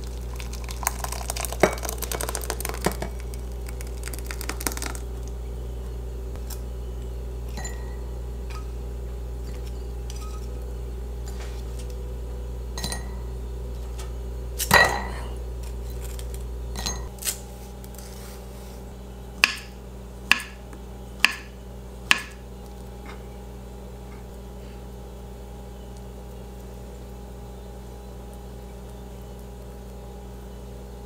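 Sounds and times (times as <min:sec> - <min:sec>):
steady low hum: 0:00.0 - 0:31.0
glassware and dishes clinking: 0:07.5 - 0:08.7, 0:12.8 - 0:13.2, 0:14.6 - 0:15.4, 0:16.7 - 0:17.1.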